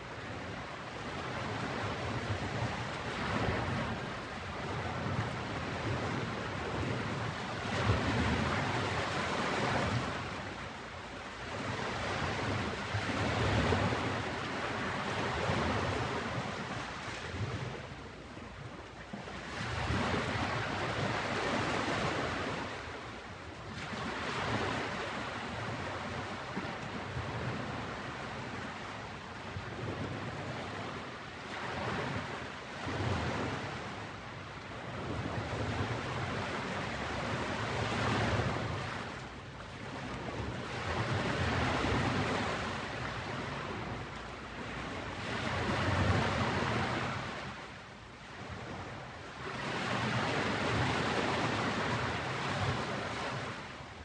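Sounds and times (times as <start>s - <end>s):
ocean waves breaking: 0.0s - 54.0s.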